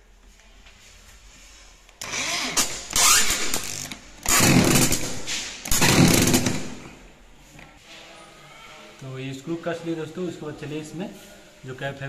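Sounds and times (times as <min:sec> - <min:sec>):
electric drill driving screws: 0:02.0 - 0:05.1, 0:05.7 - 0:06.7.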